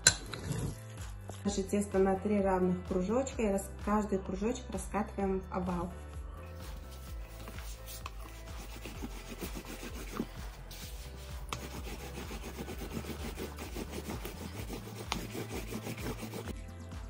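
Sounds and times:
rolling pin rubbing over dough: 0:06.6 - 0:16.5.

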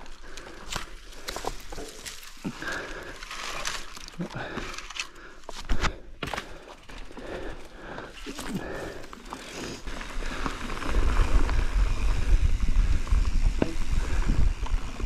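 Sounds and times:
bike rattling: 0:00.0 - 0:15.0
bike tyres on dirt: 0:00.0 - 0:15.0
wind rumble on microphone: 0:10.8 - 0:15.0.

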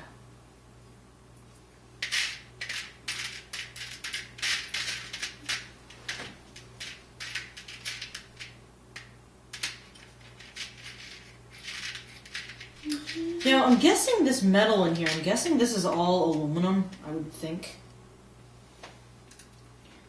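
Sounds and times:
small hard parts clicking and rattling: 0:02.0 - 0:13.9.

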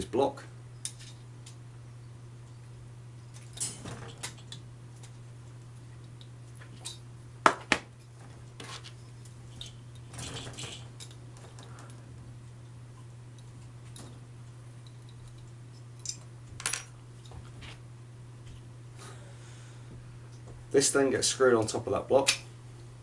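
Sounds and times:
steady low hum: 0:00.0 - 0:23.0
metal scraping clatter: 0:08.1 - 0:11.9
small metal parts clicking: 0:09.2 - 0:12.0, 0:14.8 - 0:17.4.

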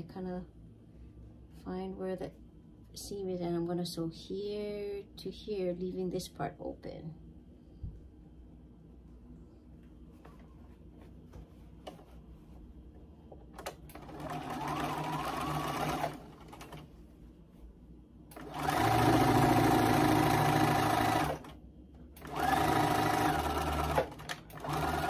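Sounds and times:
sewing machine stitching: 0:13.6 - 0:16.8, 0:18.3 - 0:21.6, 0:22.2 - 0:25.0.

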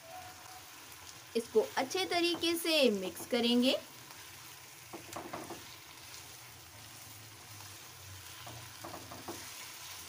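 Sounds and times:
chicken sizzling in hot oil: 0:00.0 - 0:10.0
spatula knocking against pan: 0:02.2 - 0:02.6, 0:04.9 - 0:05.7, 0:08.4 - 0:09.5.

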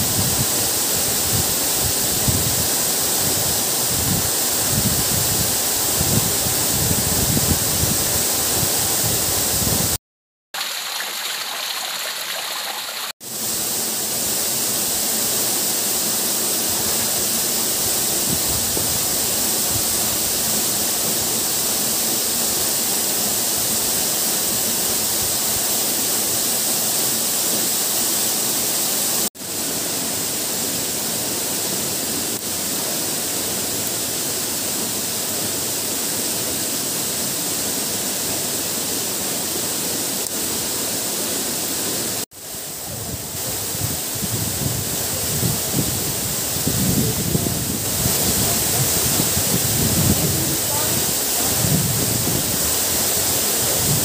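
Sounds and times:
waterfall rushing: 0:10.6 - 0:13.6, 0:39.0 - 0:54.0.

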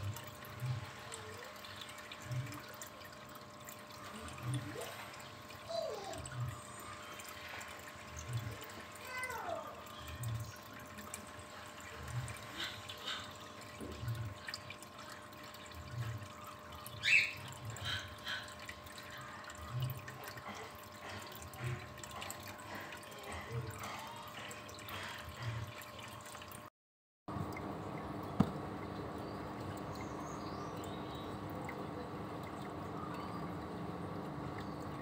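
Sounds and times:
water trickling and dripping: 0:00.0 - 0:26.7, 0:27.3 - 0:35.0
faint steady hum: 0:27.3 - 0:35.0.

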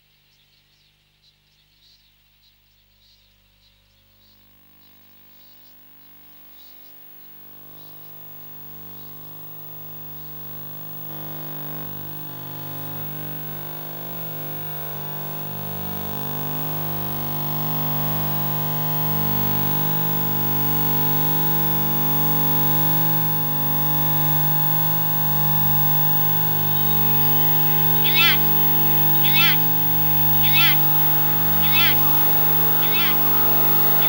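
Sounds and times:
electronic noise drone: 0:22.1 - 0:34.0.

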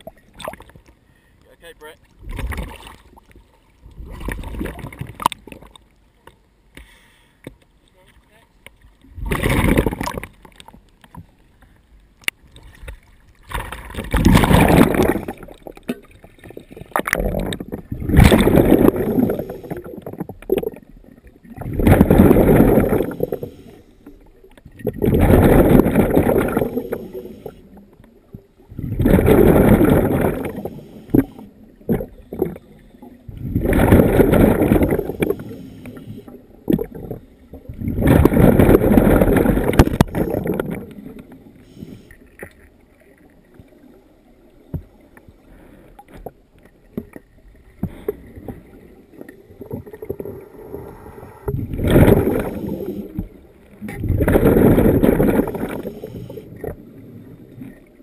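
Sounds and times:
exhaled bubbles rushing: 0:03.8 - 0:05.8, 0:09.1 - 0:10.7, 0:13.4 - 0:23.7, 0:24.7 - 0:27.8, 0:28.6 - 0:41.4, 0:48.1 - 0:57.8
diver breathing through regulator: 0:06.8 - 0:07.5, 0:22.8 - 0:24.2, 0:34.7 - 0:36.4, 0:55.4 - 0:56.6.

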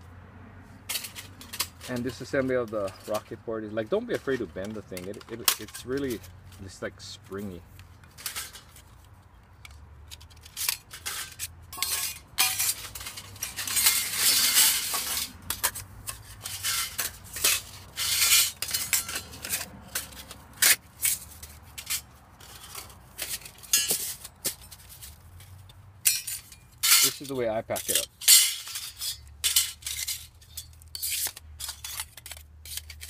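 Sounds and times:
metal stove panels clinking: 0:10.6 - 0:15.8, 0:26.0 - 0:32.4.

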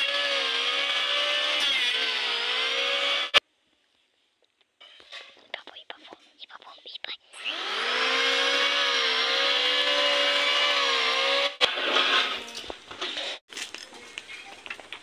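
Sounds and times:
electric planer cutting wood: 0:00.0 - 0:03.4, 0:07.4 - 0:12.5.

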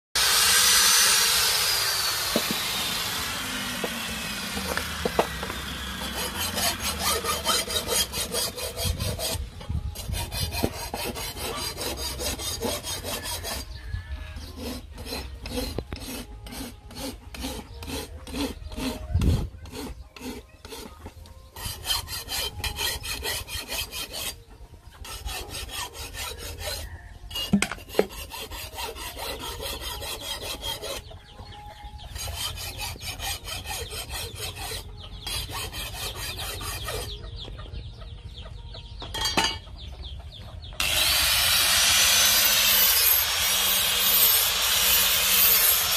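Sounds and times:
angle grinder winding down: 0:00.2 - 0:07.5, 0:40.8 - 0:45.9
file rasping on knife blade: 0:03.9 - 0:37.4, 0:40.8 - 0:45.9.

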